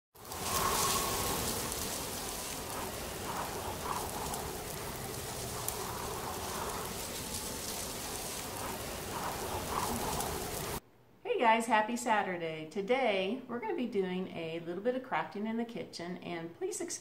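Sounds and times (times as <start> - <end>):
faint murmurs: 0.2 - 10.8
rain-like hiss: 0.2 - 10.8.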